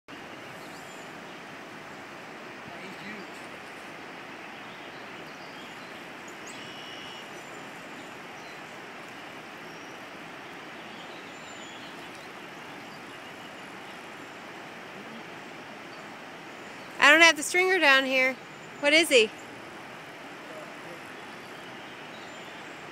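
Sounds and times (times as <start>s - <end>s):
river water flowing: 0.1s - 22.9s
faint bird chirps: 4.4s - 8.8s, 9.6s - 17.0s, 20.4s - 22.9s.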